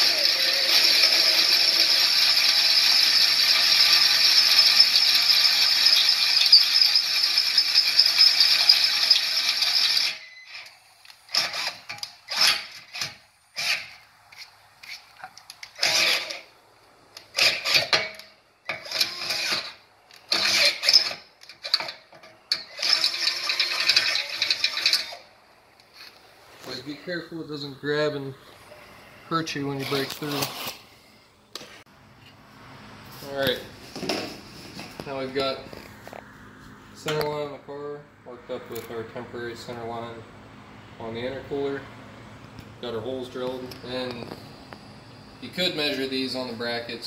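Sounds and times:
cordless drill boring: 0:00.0 - 0:13.9, 0:15.6 - 0:16.4, 0:18.7 - 0:21.9, 0:22.5 - 0:25.3.

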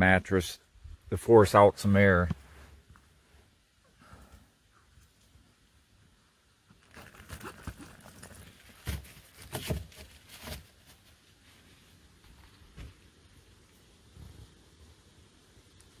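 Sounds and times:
plastic bottle crinkling: 0:06.7 - 0:10.8.

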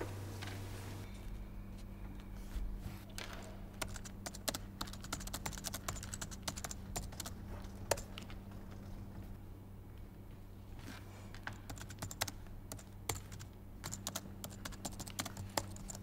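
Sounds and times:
steady low hum: 0:00.0 - 0:16.0
typing on a keyboard: 0:03.8 - 0:08.2, 0:11.5 - 0:16.0.

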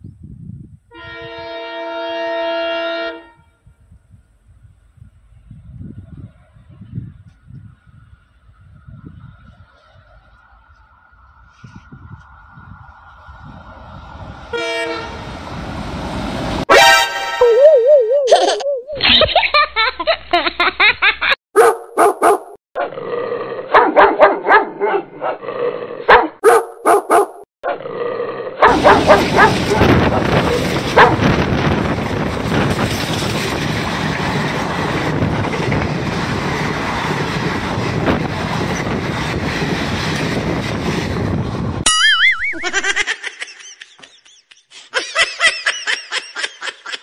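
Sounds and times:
train rumbling and rattling past: 0:12.3 - 0:16.7, 0:28.7 - 0:41.8
dog barking: 0:21.6 - 0:22.6, 0:23.7 - 0:25.4, 0:26.1 - 0:27.4, 0:28.6 - 0:29.9, 0:30.5 - 0:31.2
train knocks: 0:28.8 - 0:41.4.

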